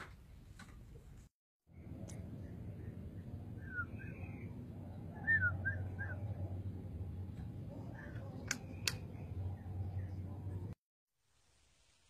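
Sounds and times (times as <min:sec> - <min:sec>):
steady low hum: 0:01.7 - 0:10.8
bird whistled chirps: 0:03.6 - 0:04.4, 0:05.2 - 0:06.2
sharp clicks: 0:08.4 - 0:09.1.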